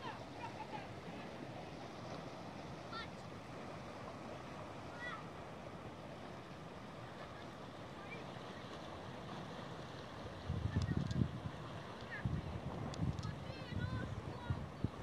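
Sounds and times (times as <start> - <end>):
sea washing against rocks: 0.0 - 15.0
wind buffeting microphone: 10.2 - 15.0.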